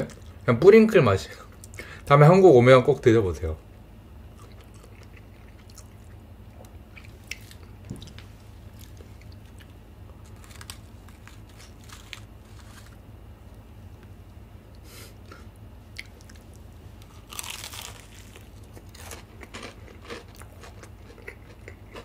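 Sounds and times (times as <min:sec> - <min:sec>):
crunchy chewing: 0:04.3 - 0:13.1, 0:14.7 - 0:22.0.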